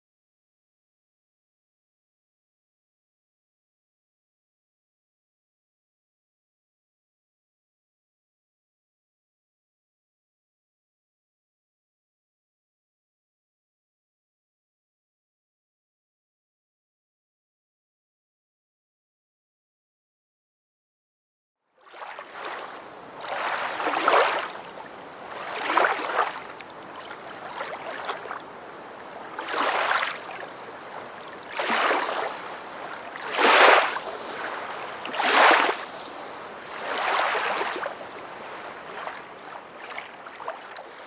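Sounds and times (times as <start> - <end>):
water splashing in small waves: 21.8 - 41.0.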